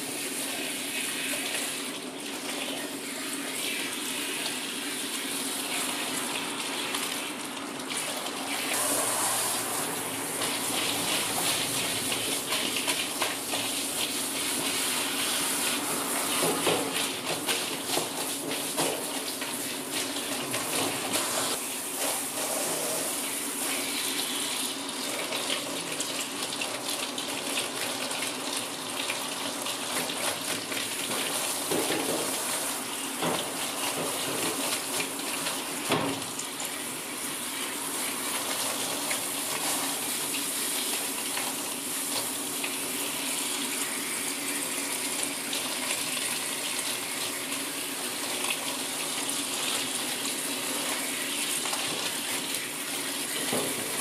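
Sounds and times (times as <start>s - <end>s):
shower head spraying water: 8.0s - 24.5s, 36.9s - 42.4s.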